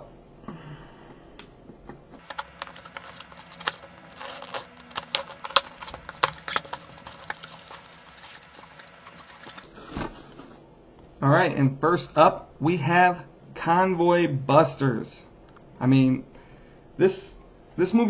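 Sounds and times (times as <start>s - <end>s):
cardboard flaps crinkling: 2.2s - 9.7s
knife cutting cardboard box: 2.2s - 9.7s.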